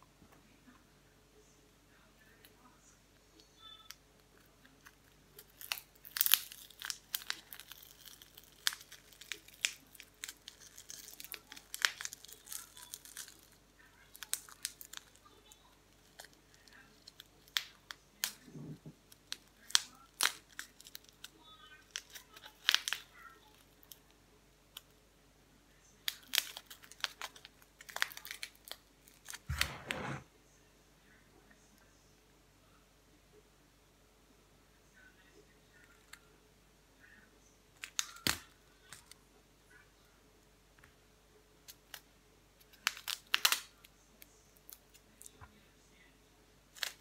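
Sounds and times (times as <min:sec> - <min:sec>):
wrapper crinkling and tearing: 0:05.4 - 0:24.0, 0:26.1 - 0:30.0, 0:37.8 - 0:39.2, 0:42.7 - 0:43.8, 0:46.7 - 0:47.0.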